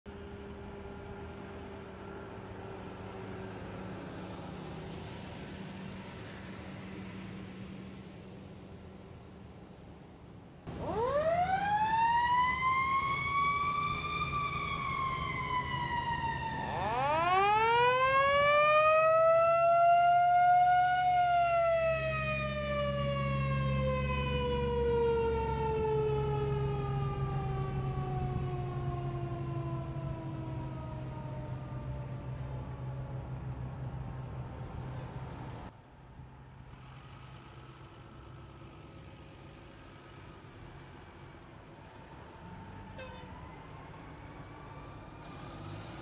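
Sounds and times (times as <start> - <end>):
low engine rumble: 19.0 - 46.0.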